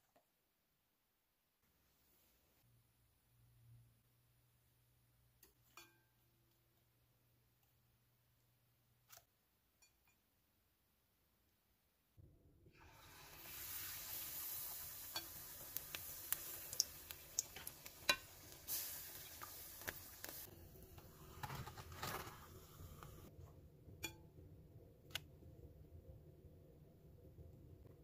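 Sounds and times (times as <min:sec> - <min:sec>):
batter deep-frying in oil: 0:12.8 - 0:23.3
click: 0:25.1 - 0:25.3.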